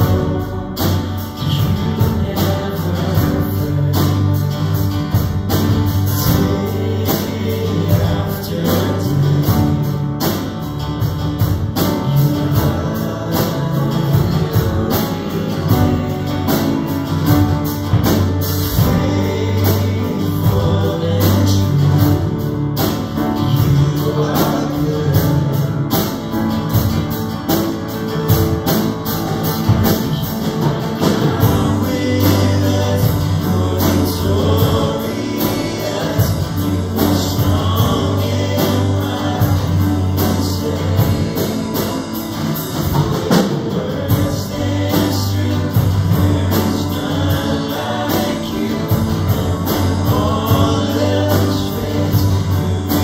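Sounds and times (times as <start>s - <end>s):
acoustic guitar: 0.0s - 53.0s
drum kit cymbal beat: 0.0s - 53.0s
people singing: 0.0s - 53.0s
piano: 0.0s - 53.0s.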